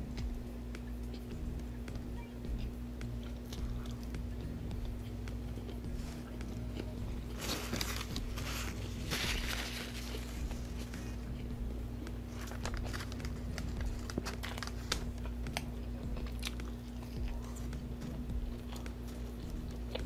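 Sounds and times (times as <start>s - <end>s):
chewing with wet clicks: 0.0s - 7.4s, 10.4s - 20.0s
steady low hum: 0.0s - 20.0s
paper napkin rustling: 5.9s - 11.4s, 12.3s - 15.7s.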